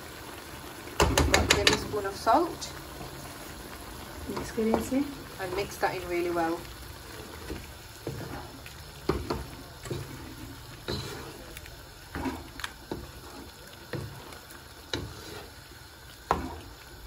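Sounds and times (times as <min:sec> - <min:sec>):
spoon knocking and scraping pan: 0:01.0 - 0:02.0, 0:04.3 - 0:05.8, 0:07.1 - 0:16.7
wet sloshing stirring: 0:03.0 - 0:17.0.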